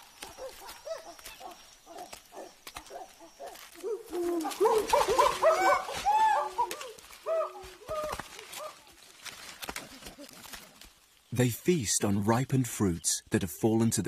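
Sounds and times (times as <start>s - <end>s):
chimpanzees hooting: 0.2s - 8.9s.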